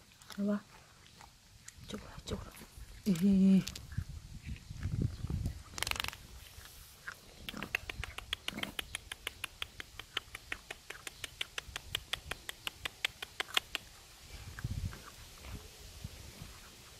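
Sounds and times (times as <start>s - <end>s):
cats crunching dry kibble: 0.0s - 15.5s.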